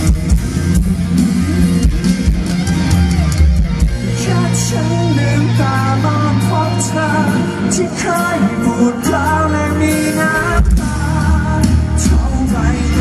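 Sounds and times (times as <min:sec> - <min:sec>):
rock band playing live: 0:00.0 - 0:13.0
man singing into microphone: 0:04.2 - 0:13.0.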